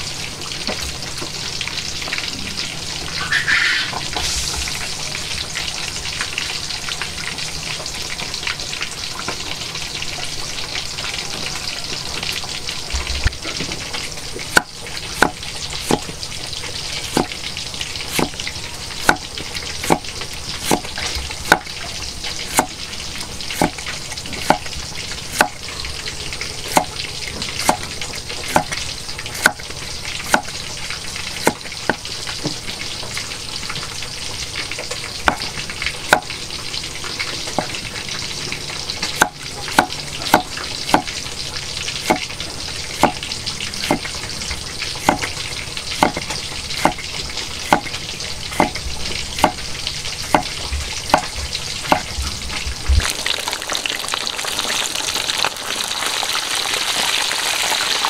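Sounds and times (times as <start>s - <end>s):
steady hiss: 3.2s - 5.4s
cleaver knocking on wooden block: 45.0s - 45.3s, 50.3s - 50.5s.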